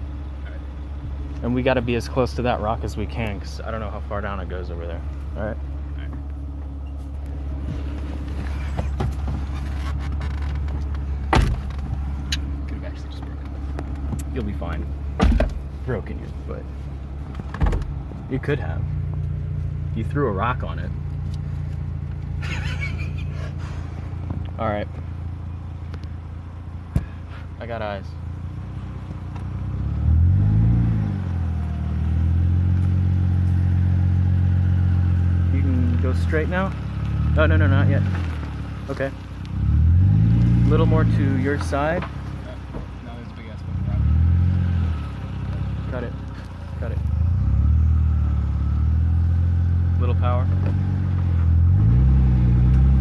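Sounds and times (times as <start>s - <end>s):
car engine idling: 0.0s - 53.0s
car door shutting: 7.6s - 12.5s, 15.2s - 15.7s, 17.3s - 18.0s.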